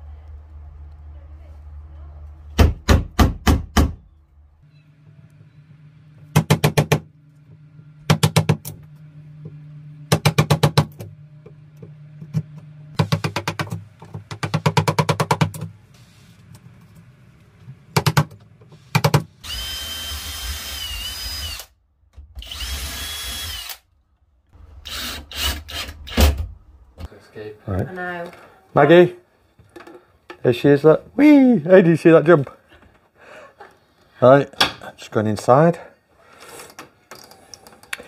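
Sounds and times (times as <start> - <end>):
cordless drill whining: 19.4 - 21.7, 22.4 - 23.8, 24.8 - 25.9.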